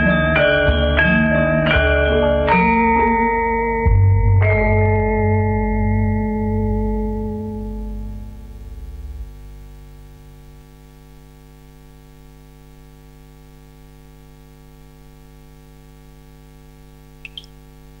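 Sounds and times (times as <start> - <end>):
electrical mains hum: 6.2 - 18.0
short high chirps: 17.2 - 17.6.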